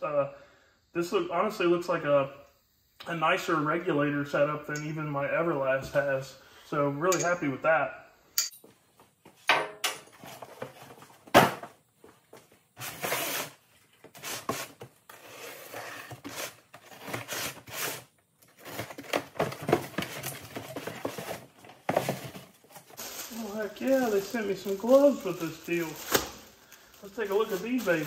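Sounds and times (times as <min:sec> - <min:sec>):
cardboard scraping and rustling: 0:10.1 - 0:11.4, 0:12.4 - 0:26.4.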